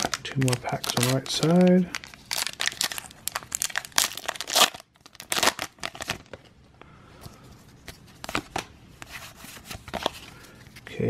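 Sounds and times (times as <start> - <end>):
foil wrapper tearing and crinkling: 0.0 - 6.4.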